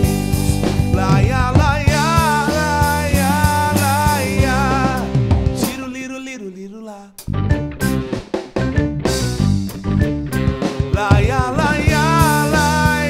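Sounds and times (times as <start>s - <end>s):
electric bass: 0.0s - 5.8s, 7.2s - 13.0s
drum kit: 0.0s - 5.9s, 7.2s - 13.0s
keyboard: 0.0s - 5.9s, 7.3s - 13.0s
electric guitar: 0.0s - 6.0s, 7.2s - 13.0s
man singing long wavering notes: 10.9s - 13.0s.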